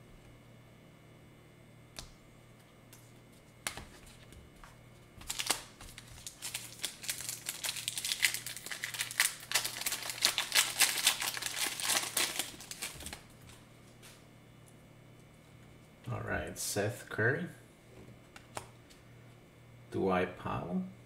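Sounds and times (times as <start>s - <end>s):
foil wrapper tearing and crinkling: 5.2s - 13.4s.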